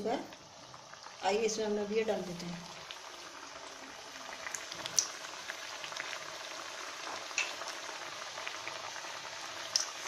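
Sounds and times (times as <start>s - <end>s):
oil sizzling and bubbling: 0.0s - 10.0s.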